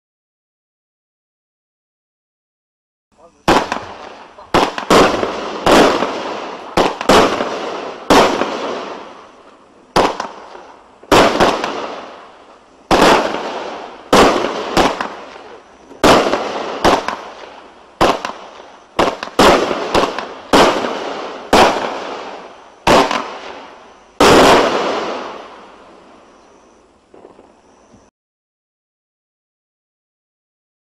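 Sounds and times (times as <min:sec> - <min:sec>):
firework cake bangs: 0:03.3 - 0:12.3, 0:12.9 - 0:25.7.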